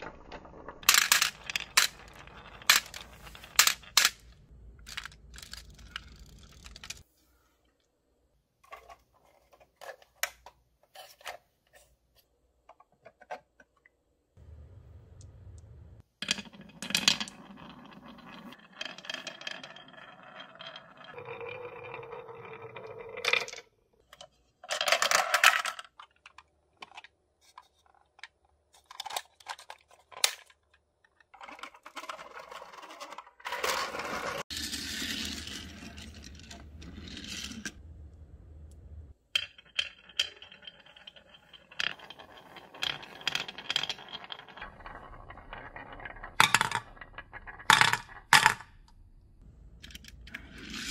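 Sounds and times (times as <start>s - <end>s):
marbles clicking and clacking: 0.0s - 7.0s, 39.4s - 48.7s
marbles rolling on wooden track: 0.0s - 7.1s, 16.2s - 23.7s, 24.7s - 27.1s, 31.4s - 37.8s, 39.4s - 48.7s, 49.8s - 50.9s.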